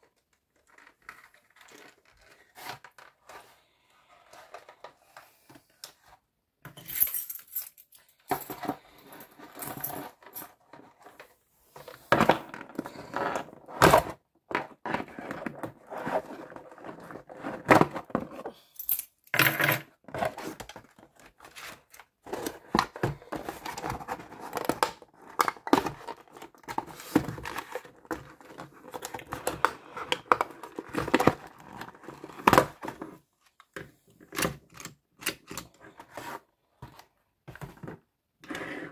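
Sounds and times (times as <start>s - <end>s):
cardboard and packaging rustling: 20.2s - 34.1s.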